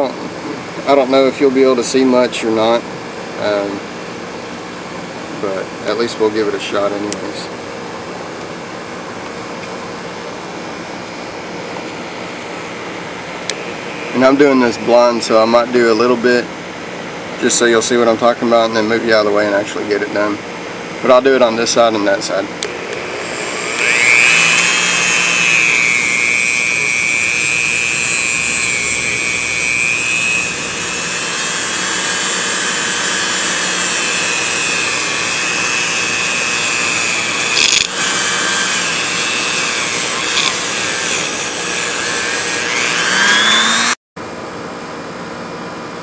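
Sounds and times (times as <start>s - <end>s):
rotary tool whining: 22.6s - 44.0s.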